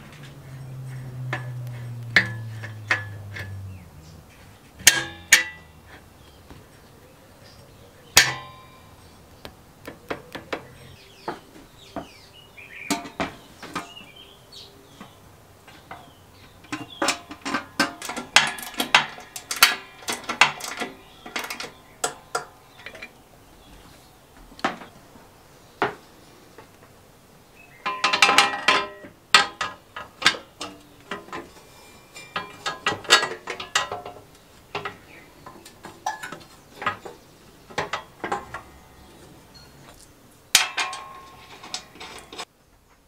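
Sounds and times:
metal parts clinking and rattling: 0.0 - 6.1, 15.7 - 23.1, 27.8 - 38.8, 40.6 - 42.5.

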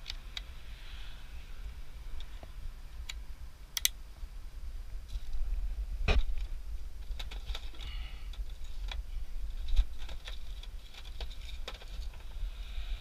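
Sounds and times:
sharp click: 3.8 - 4.0.

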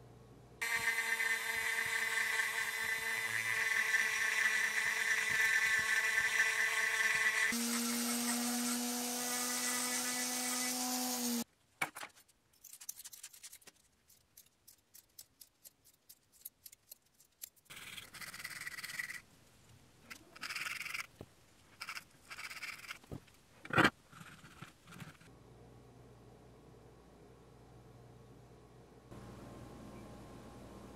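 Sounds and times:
rotary tool carving wood: 0.6 - 11.4, 17.4 - 19.2, 20.1 - 21.2, 21.8 - 25.3.

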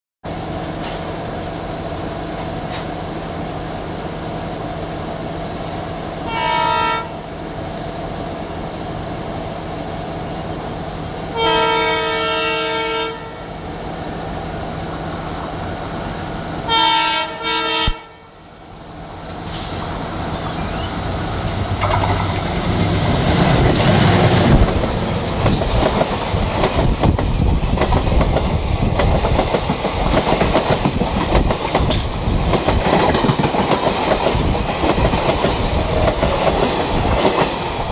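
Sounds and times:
diesel locomotive engine passing: 0.2 - 37.9
train wheels clickety-clack: 0.6 - 1.2, 2.3 - 3.0, 21.4 - 37.9
locomotive horn blasts: 6.3 - 7.2, 11.3 - 13.5, 16.7 - 18.4.

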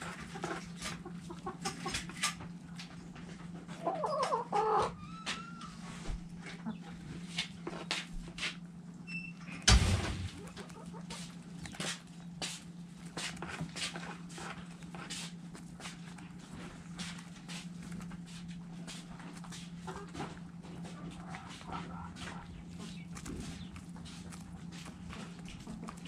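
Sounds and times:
chickens pecking feed: 0.0 - 26.0
steady low hum: 0.0 - 26.0
chicken chirp: 3.7 - 7.1, 20.9 - 24.0
thump: 9.7 - 10.3.

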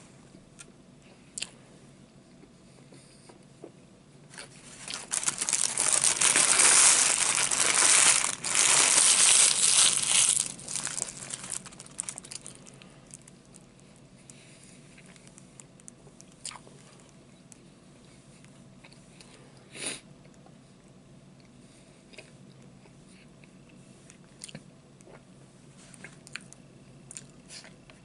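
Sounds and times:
food packaging crinkling: 4.3 - 13.7.

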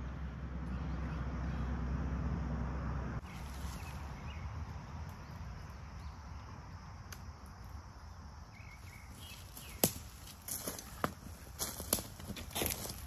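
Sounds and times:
low woodland rumble: 0.0 - 13.0
footstep crunching dry leaves: 3.2 - 4.7, 8.6 - 13.0.

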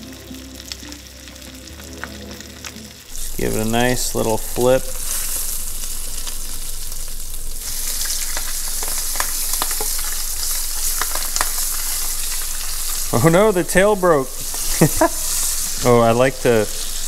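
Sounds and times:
fish sizzling in butter: 0.0 - 17.0.

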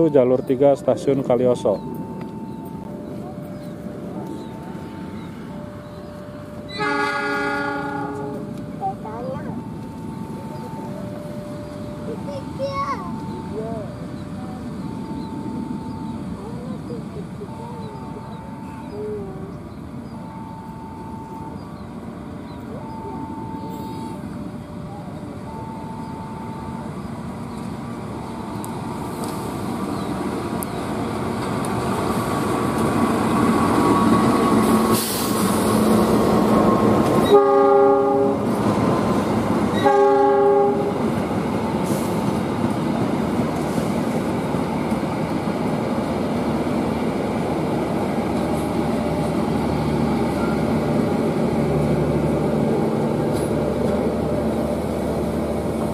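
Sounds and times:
passenger train passing: 0.0 - 55.9
locomotive horn blasts: 6.7 - 8.5, 37.2 - 38.6, 39.7 - 41.1.

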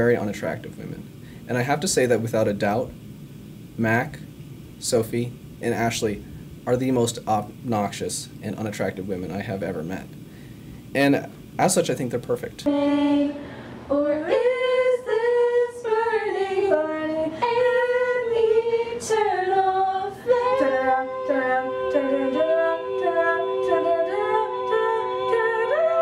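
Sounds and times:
women singing unaccompanied: 12.7 - 26.0.

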